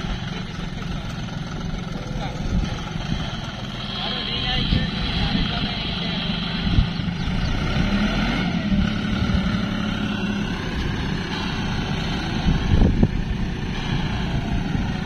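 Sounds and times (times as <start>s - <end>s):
tractor engine running: 0.0s - 15.0s.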